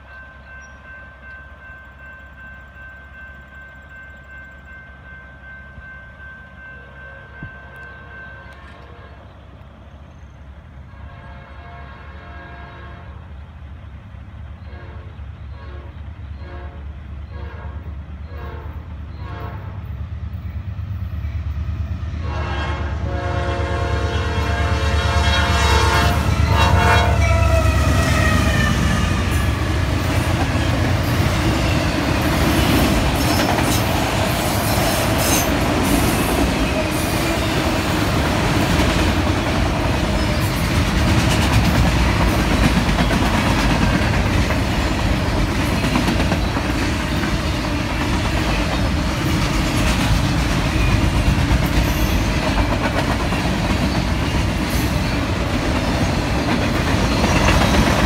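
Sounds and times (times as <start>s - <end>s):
clickety-clack of rolling railcars: 0.0s - 58.0s
train horn: 6.6s - 9.4s, 10.8s - 13.4s, 14.6s - 20.0s, 22.2s - 33.8s.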